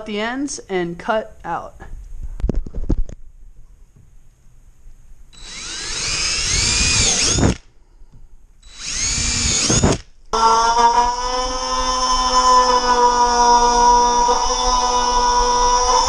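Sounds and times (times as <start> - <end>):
power drill whining: 5.4 - 7.7, 8.6 - 16.0
power tool buzzing: 5.4 - 7.7, 8.6 - 16.0.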